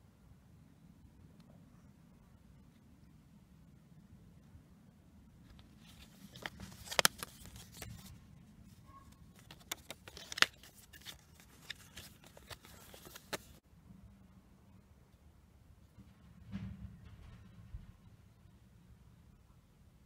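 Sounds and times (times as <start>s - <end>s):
paper card crinkling: 5.5s - 13.6s.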